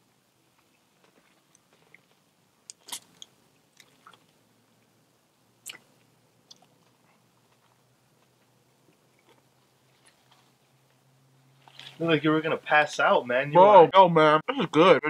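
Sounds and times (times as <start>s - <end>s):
person chewing with wet mouth smacks: 0.6s - 4.4s, 5.6s - 10.5s.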